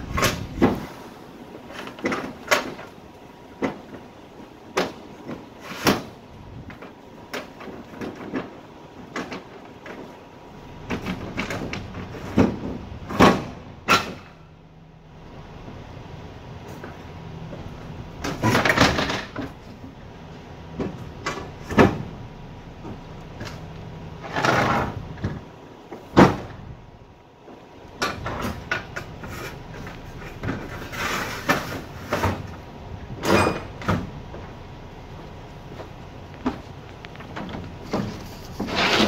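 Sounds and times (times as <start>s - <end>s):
scraping on trailer floor: 0.0s - 14.5s, 22.8s - 26.7s, 28.0s - 34.6s, 35.6s - 39.0s
knocks and clanks in trailer: 0.0s - 14.7s, 16.6s - 26.9s, 27.9s - 39.0s.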